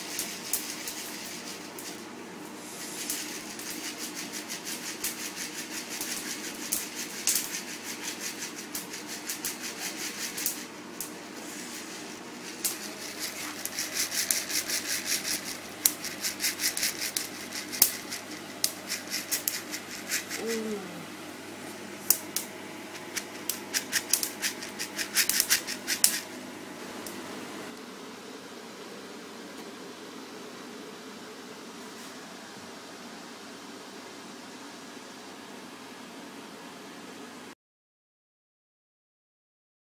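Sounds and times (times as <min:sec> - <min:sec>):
coffee beans cracking and popping: 0:03.0 - 0:11.2, 0:12.5 - 0:20.4, 0:22.1 - 0:26.2.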